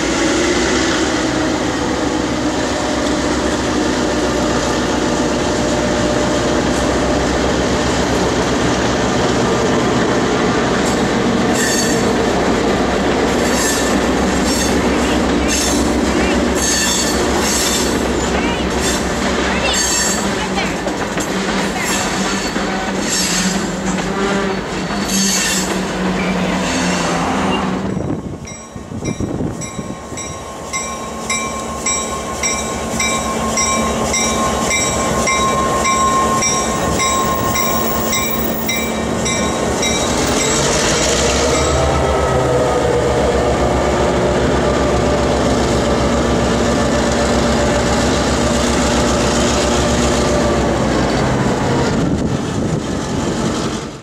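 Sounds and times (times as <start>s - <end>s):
train wheels rumbling on rails: 0.0s - 54.0s
bell ringing: 28.5s - 40.6s.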